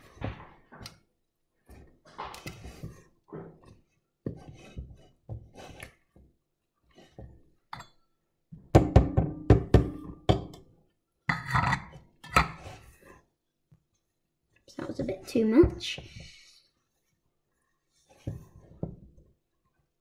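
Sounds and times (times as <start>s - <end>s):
spatula scraping batter in bowl: 1.6s - 7.7s, 11.3s - 13.3s.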